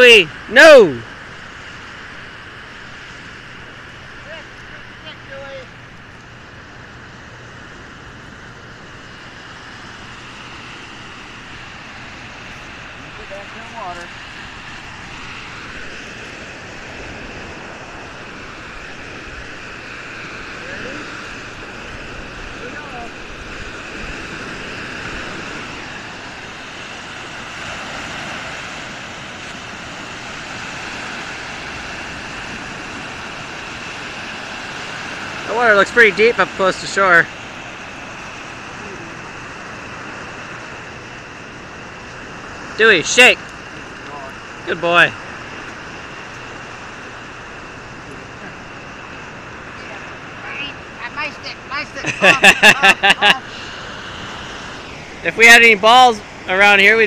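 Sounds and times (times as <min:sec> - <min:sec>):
lake surf: 0:00.0 - 0:57.0.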